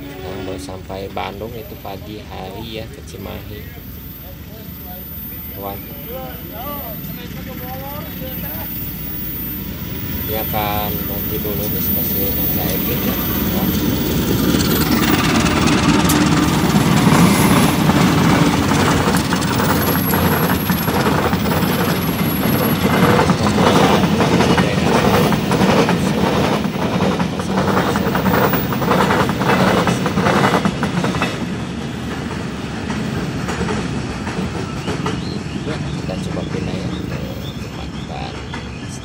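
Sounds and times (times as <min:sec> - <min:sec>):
train rumbling past: 0:00.0 - 0:39.0
wheels clacking over rail joints: 0:09.8 - 0:39.0.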